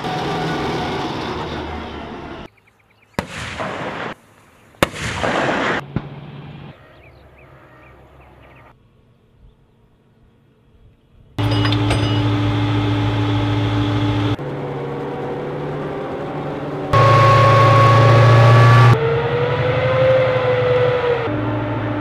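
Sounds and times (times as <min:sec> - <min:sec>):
armored vehicle running on tracks: 0:00.0 - 0:02.5, 0:11.4 - 0:22.0
heavy gunshots with rolling rumble: 0:03.2 - 0:04.2, 0:04.8 - 0:06.3.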